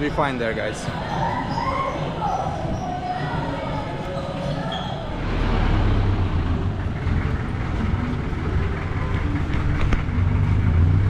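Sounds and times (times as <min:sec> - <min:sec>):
diesel engine idling: 0:05.1 - 0:11.0.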